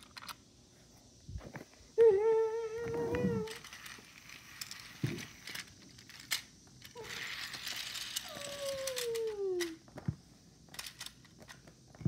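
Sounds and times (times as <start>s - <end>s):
person humming: 2.0s - 3.6s.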